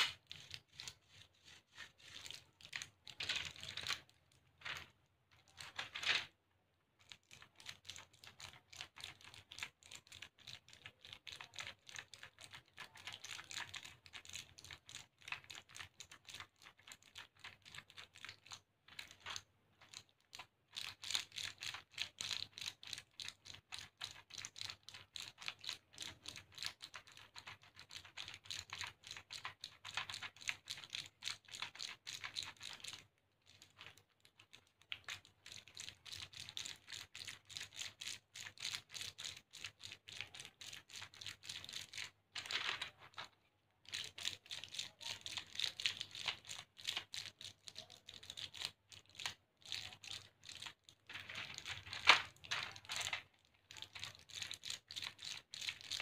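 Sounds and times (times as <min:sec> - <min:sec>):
plastic blister sheets clicking: 0:00.0 - 0:06.3, 0:41.0 - 0:54.8.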